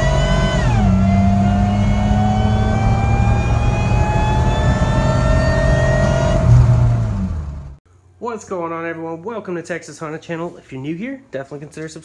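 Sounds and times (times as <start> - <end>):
car engine accelerating: 0.0 - 7.8.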